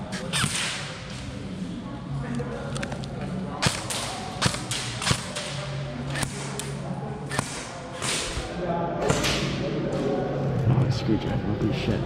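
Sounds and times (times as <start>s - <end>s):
airsoft guns popping: 3.6s - 5.6s.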